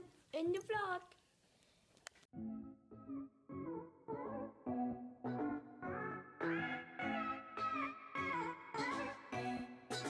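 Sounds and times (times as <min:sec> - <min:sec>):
background music with steady beat: 0:02.3 - 0:10.0.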